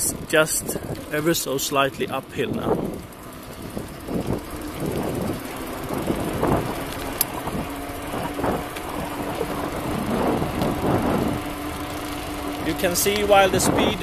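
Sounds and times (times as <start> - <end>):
rumble of knobby tyres on asphalt: 0.0 - 14.0
steady low hum: 0.0 - 14.0
wind buffeting microphone: 0.0 - 14.0.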